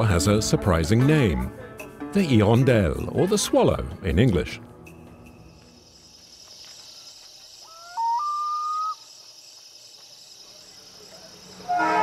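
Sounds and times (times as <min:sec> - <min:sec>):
insects chirring: 0:04.9 - 0:12.0
rising whistled call: 0:07.6 - 0:09.1.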